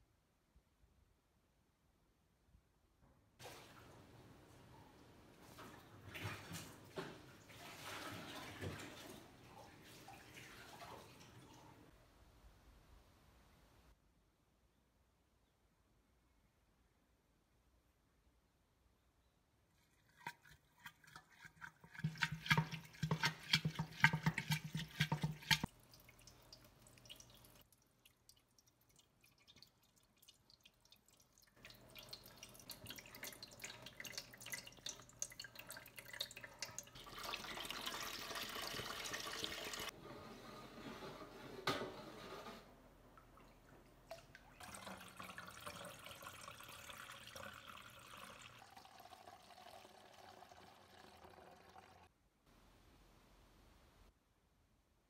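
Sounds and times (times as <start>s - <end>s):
liquid being poured: 19.8s - 40.0s, 43.2s - 52.1s
liquid dripping through sieve: 19.8s - 40.0s, 43.2s - 52.1s
spoon stirring rice mash in glass jar: 20.2s - 25.7s.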